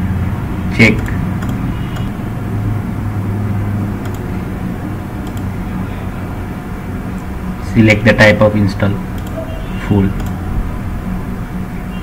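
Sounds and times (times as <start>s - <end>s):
low background hum: 0.0s - 12.0s
computer mouse clicks: 1.0s - 2.1s, 4.0s - 4.3s, 5.2s - 5.5s, 9.2s - 9.4s, 10.1s - 10.4s.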